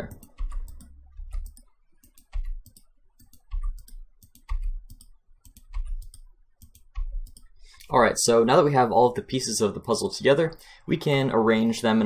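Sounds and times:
mouse and keyboard clicks: 0:00.0 - 0:07.9.

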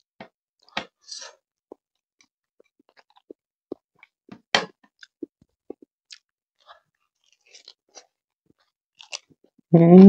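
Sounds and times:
chewing mouth sounds: 0:05.0 - 0:08.2
crunching bite: 0:09.0 - 0:09.3.

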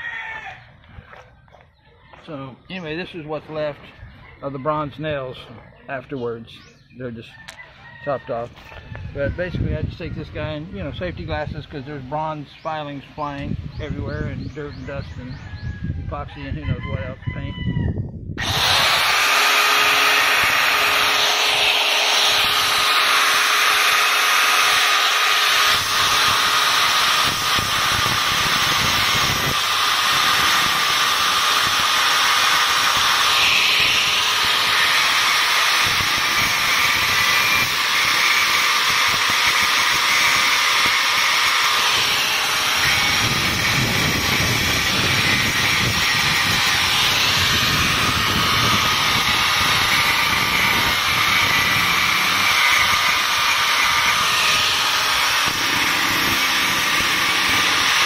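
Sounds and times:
angle grinder cutting with high whine: 0:18.4 - 0:58.0.

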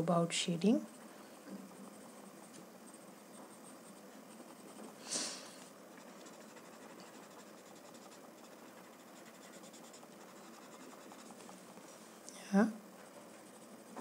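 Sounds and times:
pencil scratching on paper: 0:01.8 - 0:05.0, 0:06.0 - 0:11.5, 0:13.1 - 0:14.0.

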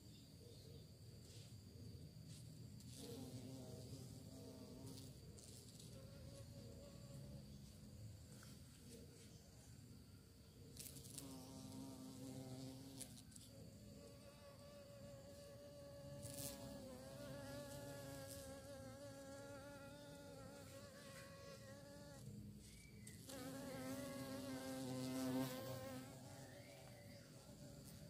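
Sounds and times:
bee buzzing in flight: 0:10.8 - 0:13.2, 0:14.1 - 0:22.3, 0:23.2 - 0:28.0.

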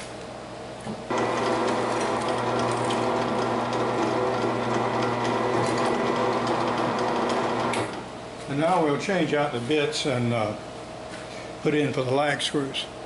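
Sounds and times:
drill bit drilling wood: 0:01.1 - 0:08.0
drill press motor humming: 0:01.1 - 0:08.2.

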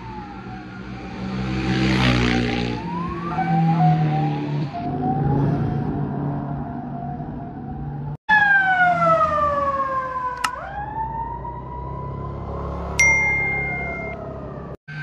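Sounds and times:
wailing emergency sirens: 0:00.0 - 0:01.4, 0:02.4 - 0:15.0
vehicle engine noise: 0:11.2 - 0:15.0.

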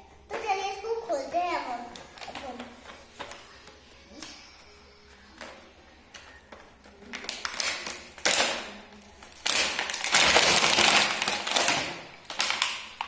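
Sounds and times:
plastic packaging crinkling: 0:06.2 - 0:13.0.

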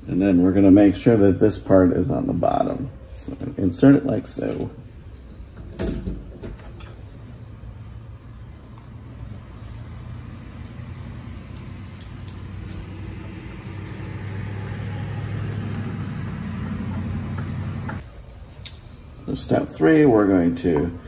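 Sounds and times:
low motor hum: 0:07.0 - 0:18.3.

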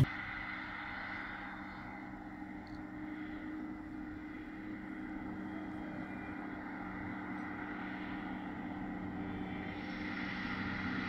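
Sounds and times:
tractor idling: 0:00.0 - 0:00.3
combine harvester driving: 0:00.0 - 0:11.0.

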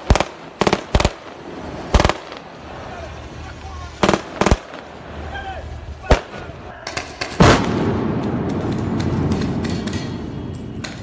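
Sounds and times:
sharp cracks: 0:00.0 - 0:02.6, 0:04.0 - 0:05.1, 0:06.0 - 0:11.0
rolling rumble: 0:00.2 - 0:11.0
loud bang: 0:06.0 - 0:11.0.

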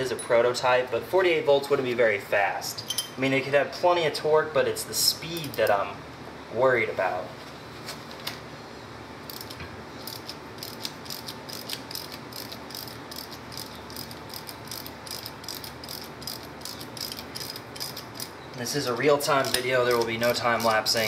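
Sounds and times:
ratchet wrench clicking: 0:09.3 - 0:18.4, 0:19.2 - 0:21.0.

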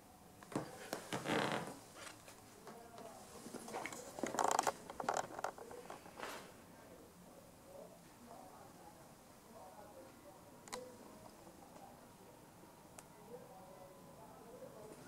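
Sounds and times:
creaks: 0:00.5 - 0:01.8, 0:03.8 - 0:06.4.

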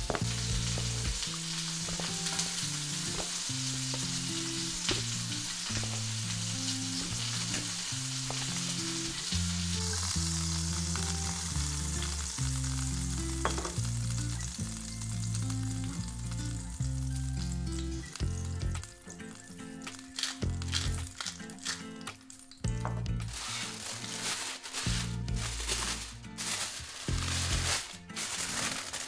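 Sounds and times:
steak sizzling in a pan: 0:00.0 - 0:22.6, 0:23.2 - 0:29.0.

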